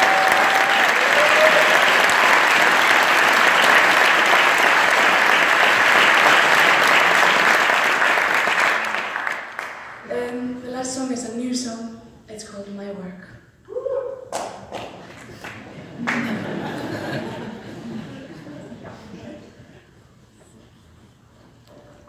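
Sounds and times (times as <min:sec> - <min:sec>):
audience applauding: 0:00.0 - 0:10.0, 0:14.3 - 0:19.2.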